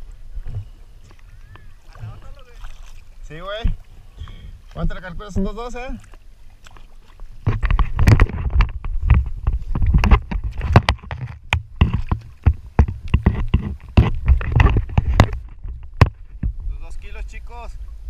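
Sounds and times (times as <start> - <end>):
water sloshing and splashing: 0.0 - 17.1
knocks and clicks: 7.5 - 16.6.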